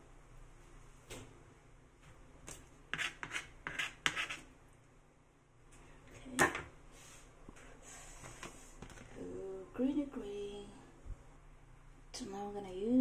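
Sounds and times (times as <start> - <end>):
kitchen scraping and rubbing: 2.9 - 4.5.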